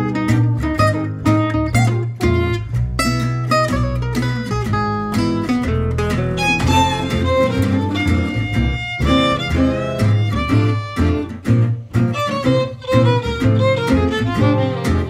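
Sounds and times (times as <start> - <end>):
strummed acoustic guitars: 0.0 - 15.0
upright double bass: 0.0 - 15.0
violin melody: 6.2 - 15.0.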